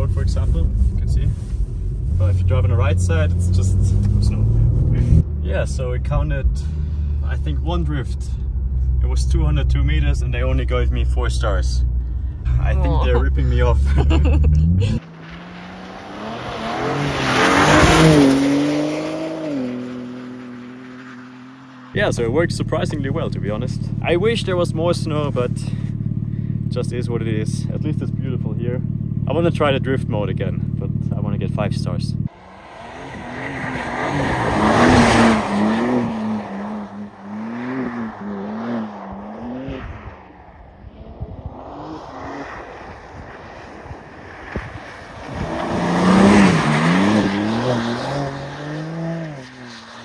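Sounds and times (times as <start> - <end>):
car engine driving past: 0.2 - 23.2, 32.3 - 50.0
tyres hissing on snowy road: 44.3 - 50.0.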